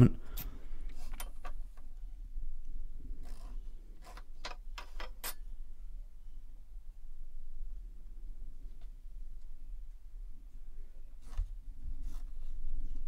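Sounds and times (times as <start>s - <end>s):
soft scrape: 11.2s - 13.0s.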